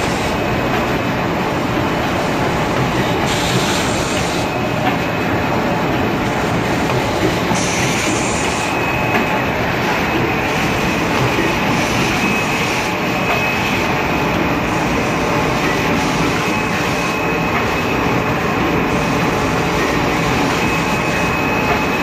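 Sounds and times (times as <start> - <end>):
packing machine running: 0.0 - 22.0
high-pitched whine: 7.5 - 22.0.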